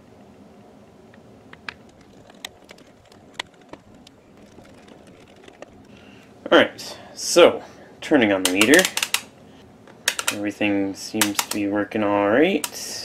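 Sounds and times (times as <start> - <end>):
faint room hum: 0.0 - 13.0.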